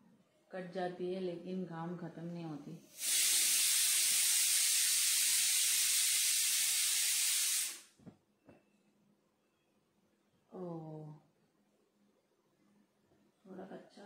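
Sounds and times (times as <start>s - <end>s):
loud steady hiss: 2.9s - 8.0s.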